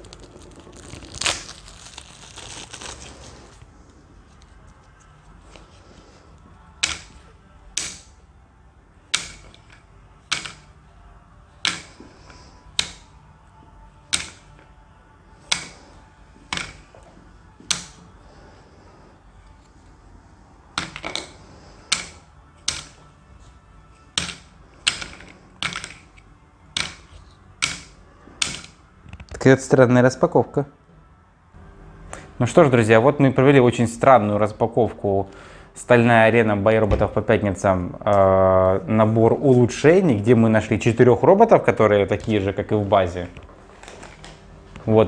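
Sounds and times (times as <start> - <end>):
game pieces clicking on a table: 24.2 - 26.1, 26.8 - 28.8.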